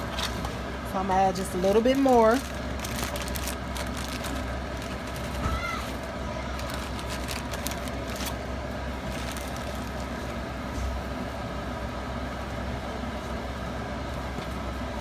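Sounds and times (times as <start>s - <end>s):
low mechanical hum: 0.0s - 15.0s
plastic bag crinkling: 1.8s - 8.4s, 9.0s - 10.2s.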